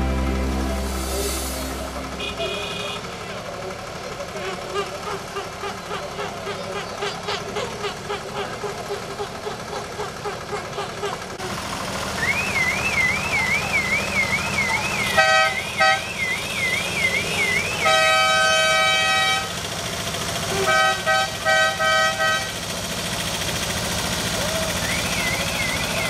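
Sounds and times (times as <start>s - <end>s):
engines idling: 0.0s - 26.0s
vehicle horn honks: 1.2s - 3.4s, 15.0s - 19.6s, 20.5s - 22.6s.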